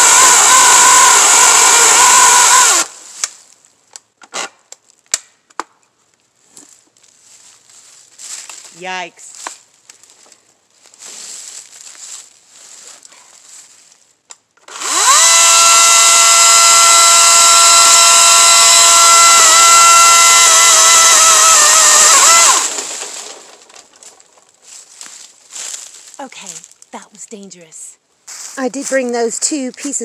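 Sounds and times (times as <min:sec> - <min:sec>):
electric chainsaw running: 0:00.0 - 0:03.0, 0:14.7 - 0:23.7
chainsaw cutting branches: 0:00.0 - 0:03.4, 0:14.7 - 0:24.2.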